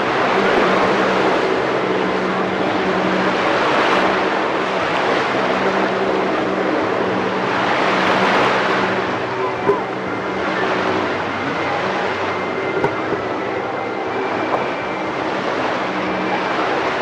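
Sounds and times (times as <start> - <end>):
jet ski engine droning: 0.0 - 17.0.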